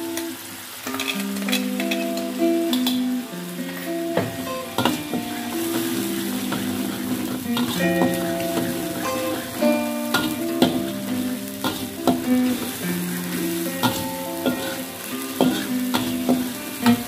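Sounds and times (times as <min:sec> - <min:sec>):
spice paste sizzling in oil: 0:00.0 - 0:17.0
metal spatula scraping a wok: 0:04.6 - 0:17.0.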